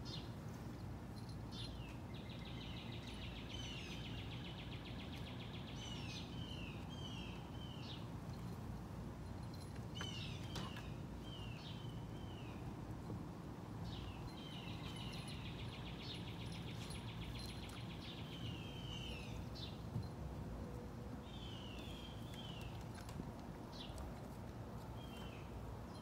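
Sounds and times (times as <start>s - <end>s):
birds chirping: 0.0s - 8.6s, 9.3s - 13.2s, 13.8s - 20.1s, 20.7s - 26.0s
low background noise: 0.0s - 26.0s
bird trill: 13.9s - 19.7s.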